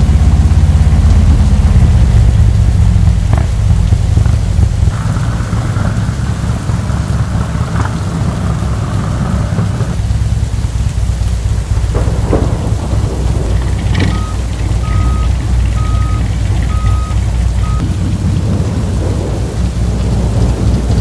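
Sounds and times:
deep steady rumble: 0.0 - 21.0
heavy rain falling: 0.0 - 21.0
short electronic beeps: 14.1 - 17.8.

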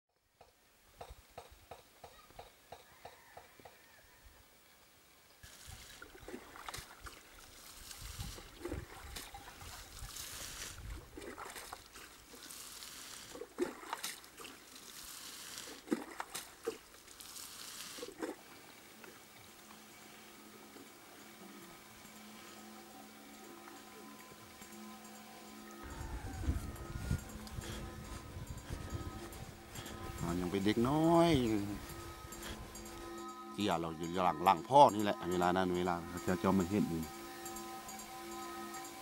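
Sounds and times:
water trickling and splashing: 5.4 - 33.3.

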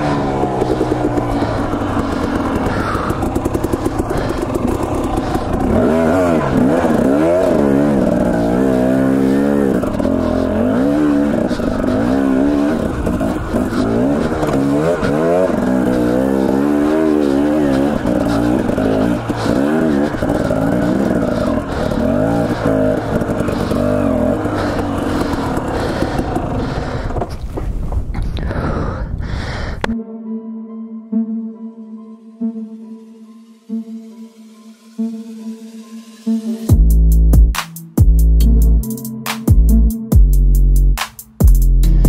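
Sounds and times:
dirt bike engine revving: 0.0 - 27.4.

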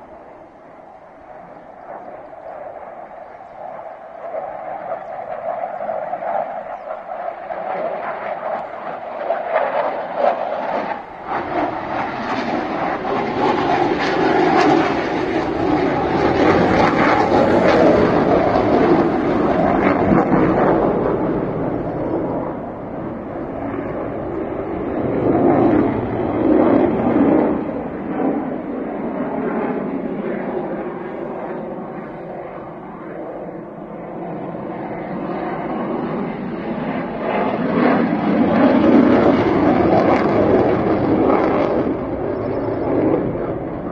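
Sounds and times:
jet engine roar: 0.0 - 43.9.

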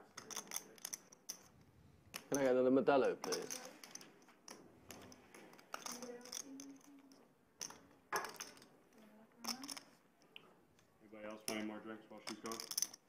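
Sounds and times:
poker chips clicking: 0.1 - 8.7, 9.4 - 10.0, 12.2 - 13.0.

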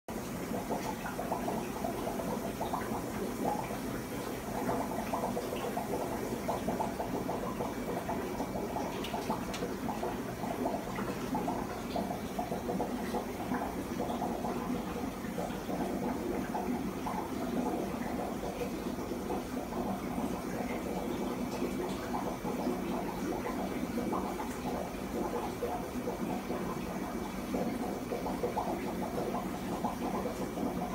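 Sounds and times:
aquarium air stones bubbling: 0.1 - 30.9.

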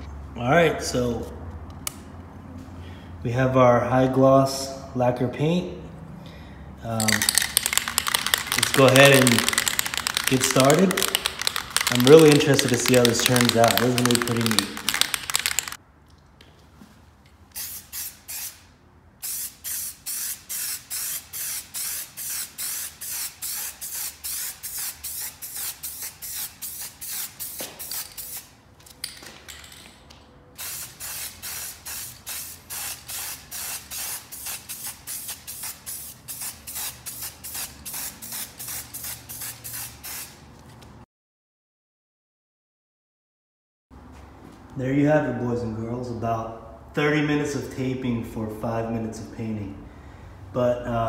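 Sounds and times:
spray can hissing in bursts: 7.0 - 15.8, 17.5 - 28.6, 30.6 - 40.4.

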